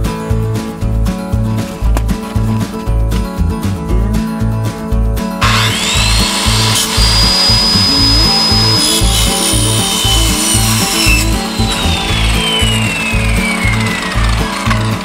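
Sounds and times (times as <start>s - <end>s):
music with a steady beat: 0.0s - 15.0s
circular saw cutting metal: 5.4s - 15.0s.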